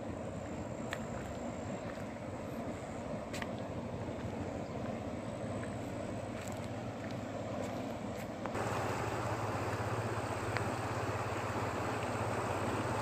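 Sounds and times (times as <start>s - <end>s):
low hum: 0.0s - 13.0s
river rushing against bank: 8.6s - 13.0s.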